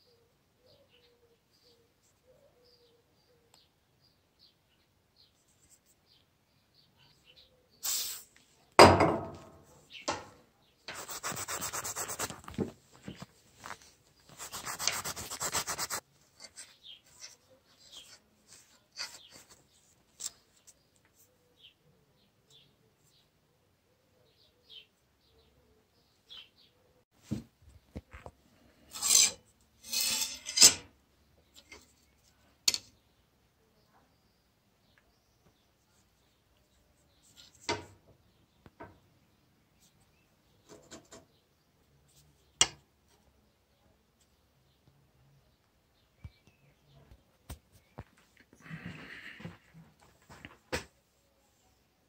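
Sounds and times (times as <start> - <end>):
aerosol can hiss: 7.8 - 8.3
scrubbing steel blade with pad: 28.9 - 30.8.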